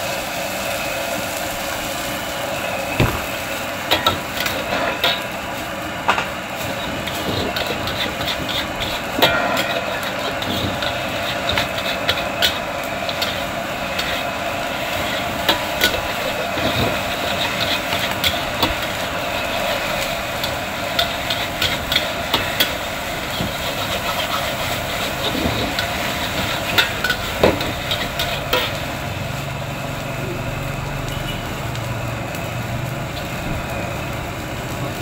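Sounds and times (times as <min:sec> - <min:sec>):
sizzling from hot pan: 0:00.0 - 0:35.0
metal spatula scraping a wok: 0:03.9 - 0:05.4, 0:06.5 - 0:29.0.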